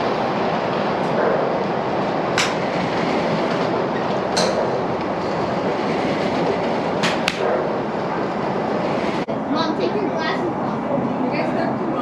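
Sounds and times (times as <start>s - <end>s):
steady rushing background noise: 0.0s - 12.0s
golf clubs striking balls: 2.3s - 2.7s, 4.0s - 5.1s, 7.0s - 7.7s.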